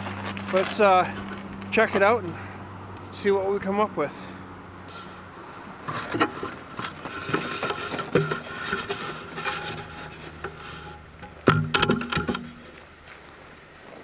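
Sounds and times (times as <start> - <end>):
footsteps on snowy ice: 0.0 - 2.1.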